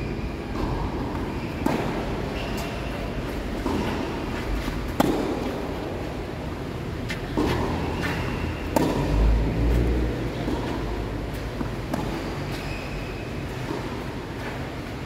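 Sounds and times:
tennis ball hits: 0.5s - 6.0s, 7.2s - 9.5s.

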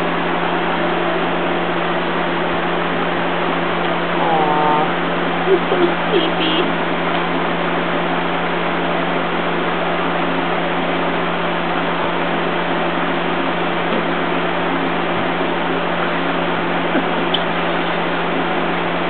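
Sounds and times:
steady hum with hiss: 0.0s - 19.0s.

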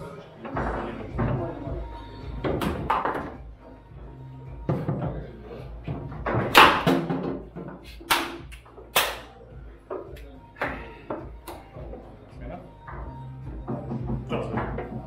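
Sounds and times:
foosball ball knocks: 6.2s - 8.4s.

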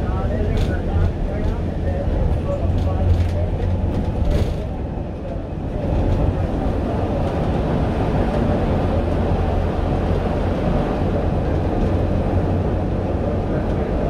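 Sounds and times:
bus engine drone: 0.0s - 14.0s.

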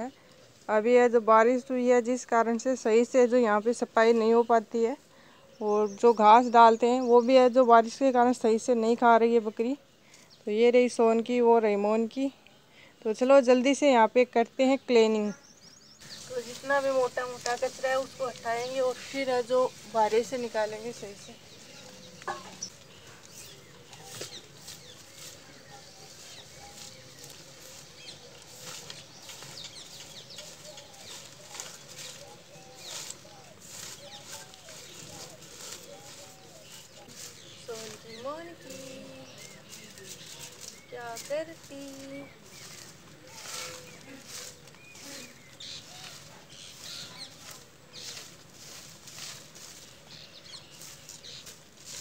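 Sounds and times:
birds chirping: 0.0s - 52.0s
broom sweeping leaves: 16.0s - 52.0s.

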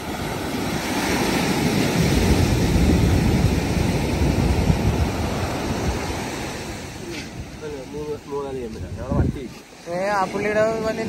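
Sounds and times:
sea surf breaking on shore: 0.0s - 11.0s.

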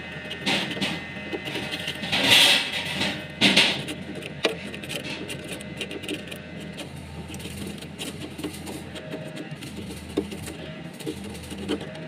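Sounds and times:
brush scraping across fins: 3.7s - 12.0s.

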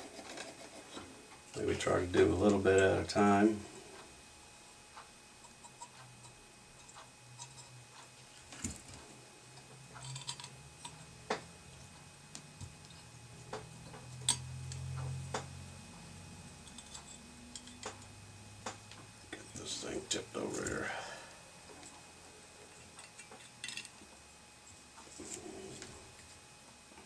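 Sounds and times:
small metal parts clicking: 10.0s - 11.0s, 22.8s - 24.0s.

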